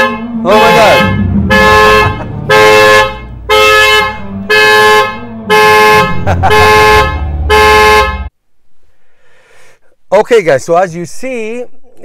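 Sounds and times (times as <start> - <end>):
car horn honking in short blasts: 0.0 - 8.3.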